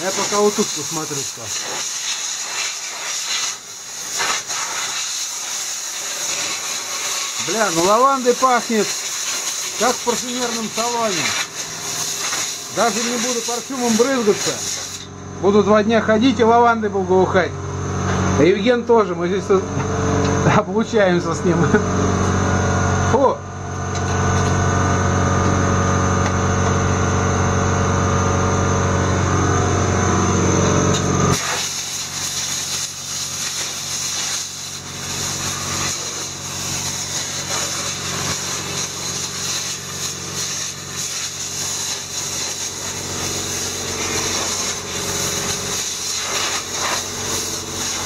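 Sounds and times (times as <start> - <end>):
motor-driven machine humming: 9.6 - 31.4, 34.7 - 48.0.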